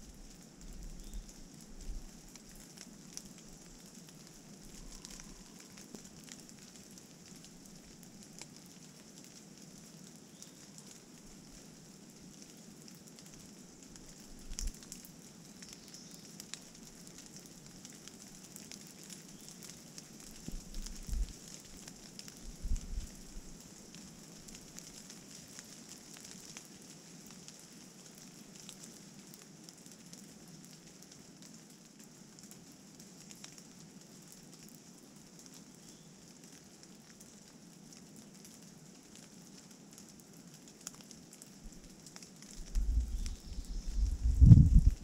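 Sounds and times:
rain pattering on leaves: 0:00.0 - 0:45.0
wind buffeting microphone: 0:22.5 - 0:23.2, 0:42.6 - 0:45.0.

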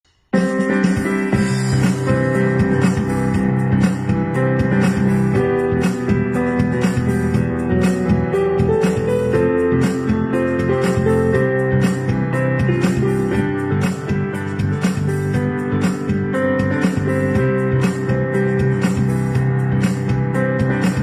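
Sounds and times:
instrumental background music: 0:00.1 - 0:21.0.

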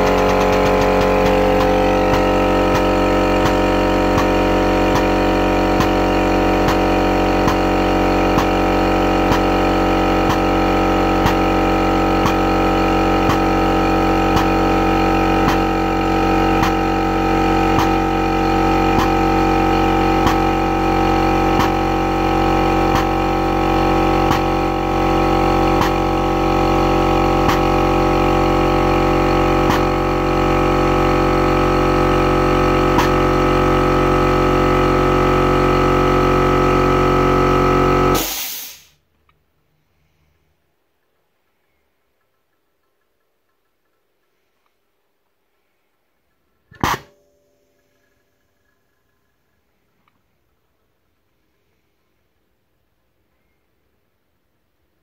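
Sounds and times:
hydraulic pump humming: 0:00.0 - 0:38.9.

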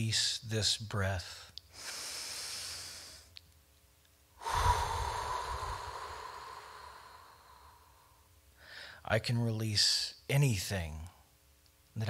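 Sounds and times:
man breathing into microphone: 0:04.4 - 0:09.0.

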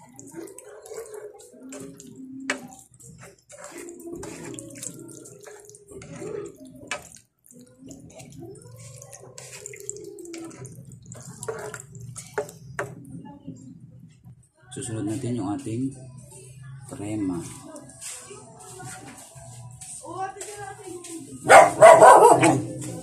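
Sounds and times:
sauce sloshing in a pan: 0:00.0 - 0:13.2.

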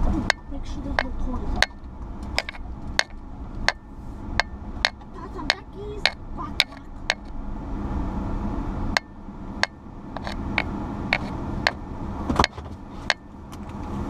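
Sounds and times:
road and engine rumble: 0:00.0 - 0:14.0.

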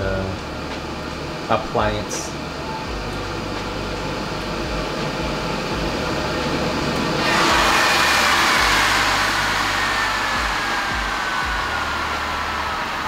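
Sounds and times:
oven convection fan running: 0:00.0 - 0:13.0
thin whine falling in pitch: 0:00.0 - 0:13.0.

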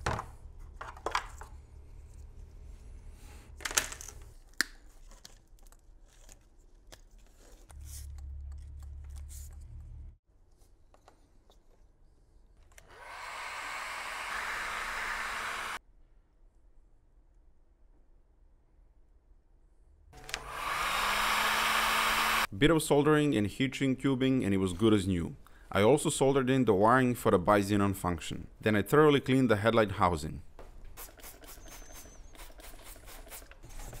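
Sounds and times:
heat gun blowing: 0:12.8 - 0:15.8, 0:20.2 - 0:22.5.

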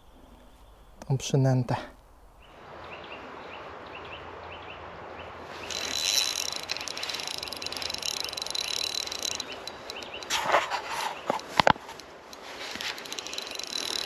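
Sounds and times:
small animal chirping: 0:05.6 - 0:10.3
high whirring with ticking: 0:05.7 - 0:10.3, 0:12.3 - 0:14.0.

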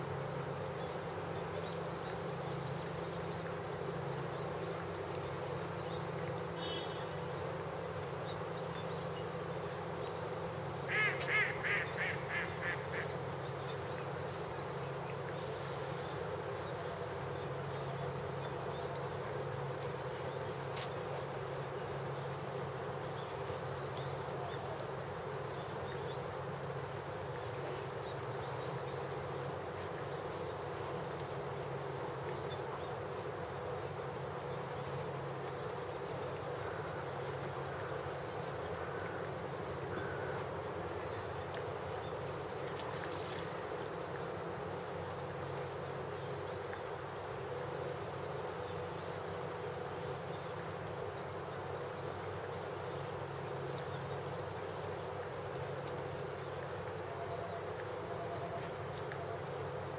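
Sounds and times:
steady low hum: 0:00.0 - 0:59.9
bird calling: 0:10.8 - 0:14.0, 0:36.3 - 0:41.9.

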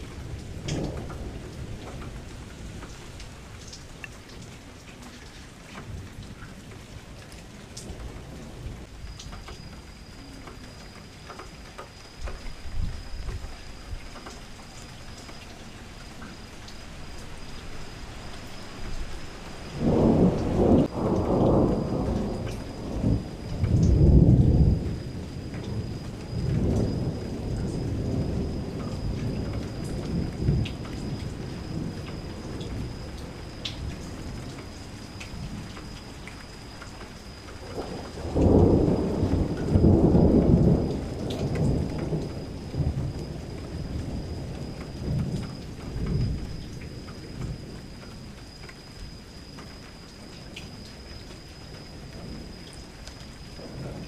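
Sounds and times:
rumbling thunder: 0:00.0 - 0:03.6, 0:19.6 - 0:36.2, 0:37.6 - 0:47.9, 0:53.6 - 0:54.0
steady rain: 0:00.0 - 0:54.0.

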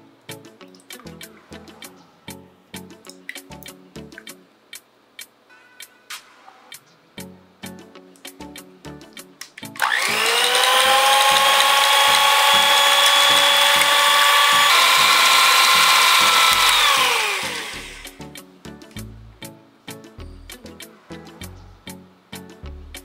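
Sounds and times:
electric hand mixer whining: 0:09.8 - 0:18.2.

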